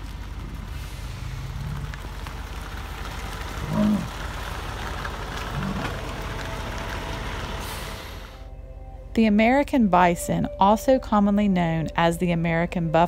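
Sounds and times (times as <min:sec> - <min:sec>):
car engine idling: 0:00.0 - 0:08.6
bison grunting: 0:00.5 - 0:02.2, 0:03.4 - 0:04.4, 0:05.4 - 0:06.2.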